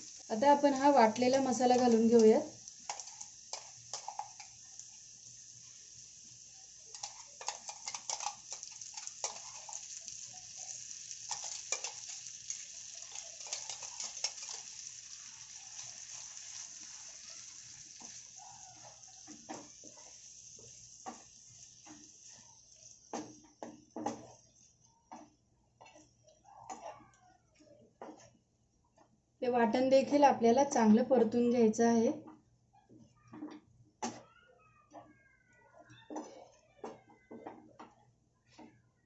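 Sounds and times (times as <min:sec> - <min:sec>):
vegetables sizzling in oil: 0:00.0 - 0:25.2
spatula scraping a pan: 0:02.8 - 0:04.6, 0:06.9 - 0:27.0.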